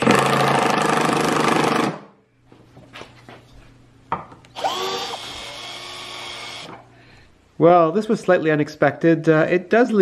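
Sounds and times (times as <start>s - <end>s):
cordless drill motor whine: 4.5s - 6.8s.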